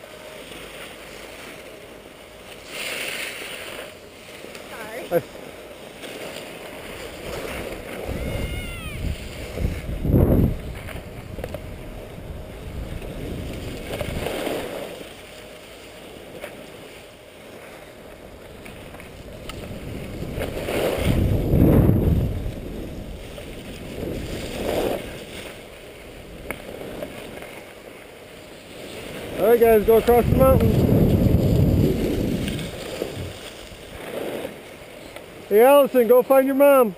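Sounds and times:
skis scraping over snow: 0:00.0 - 0:36.9
wind on microphone: 0:06.8 - 0:14.9, 0:18.7 - 0:27.4, 0:29.0 - 0:34.5.

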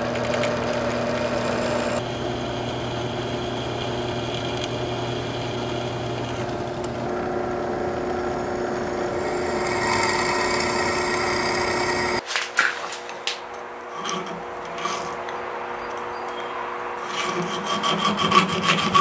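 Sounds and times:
drill press drilling steel: 0:00.1 - 0:12.2
hand file scraping metal: 0:13.9 - 0:15.2, 0:17.0 - 0:19.0.

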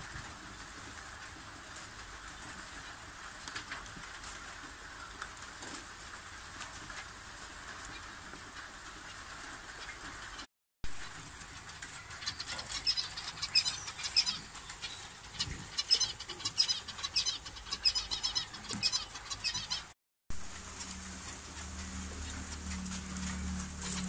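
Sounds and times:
finches chirping: 0:11.8 - 0:19.9
steady low hum: 0:20.4 - 0:24.0.

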